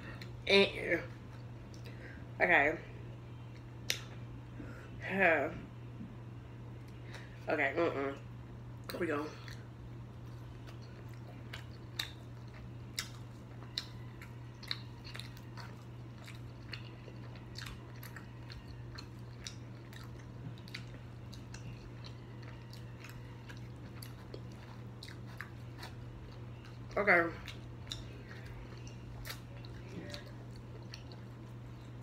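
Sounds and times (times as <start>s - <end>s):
steady low hum: 0.0s - 32.0s
person chewing chicken wings: 9.4s - 32.0s.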